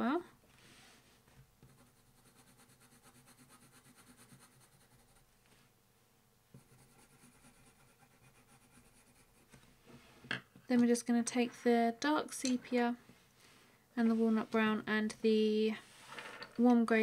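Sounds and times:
pencil scratching on paper: 1.6s - 5.3s, 6.6s - 9.6s.

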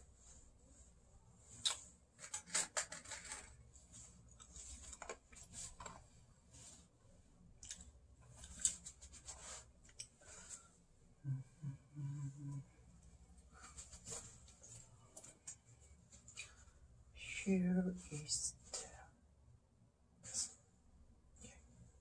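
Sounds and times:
rustling: 0.0s - 10.8s, 13.1s - 16.8s.

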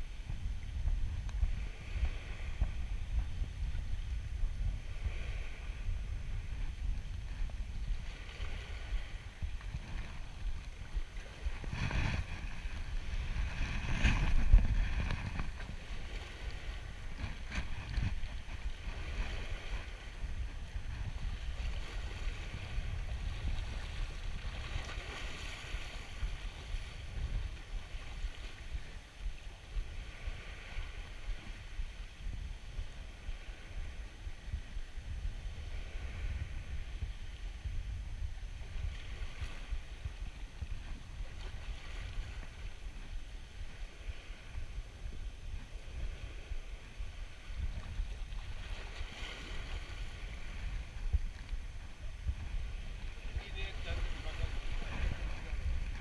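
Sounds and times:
wind buffeting microphone: 0.0s - 56.0s
waves washing against rocks: 4.8s - 28.8s, 47.2s - 56.0s.

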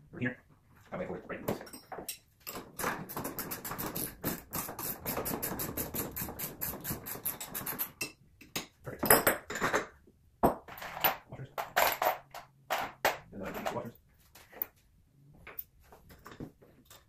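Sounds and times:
hardware clattering on workbench: 1.4s - 4.3s, 7.4s - 13.9s.

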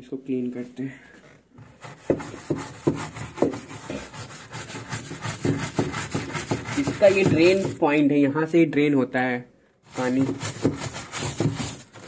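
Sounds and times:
brush scrubbing plastic: 1.5s - 8.0s, 9.9s - 12.0s.

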